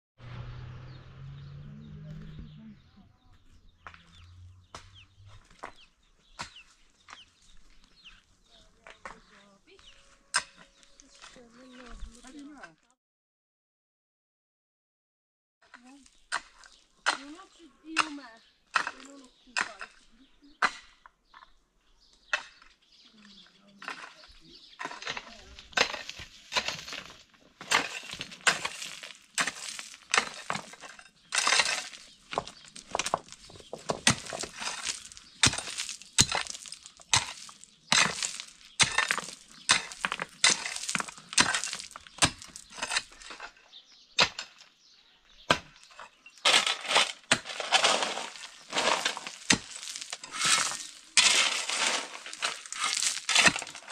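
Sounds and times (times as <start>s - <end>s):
gravel crunching and scraping: 0.2s - 13.0s, 15.6s - 53.9s
metal tools striking rock: 3.8s - 9.8s, 15.7s - 21.1s, 23.8s - 44.8s, 45.4s - 53.9s.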